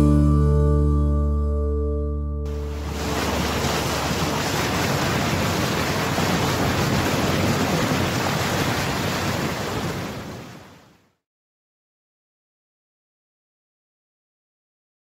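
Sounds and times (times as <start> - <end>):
wind noise on microphone: 2.5 - 10.6
water rushing: 2.5 - 11.0.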